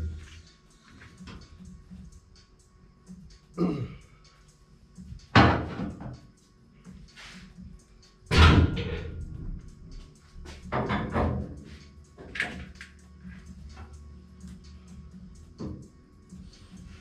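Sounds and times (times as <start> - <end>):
music in background: 0.0 - 17.0
heavy metal clunks and knocks: 5.4 - 6.2, 8.3 - 9.4, 10.6 - 12.7.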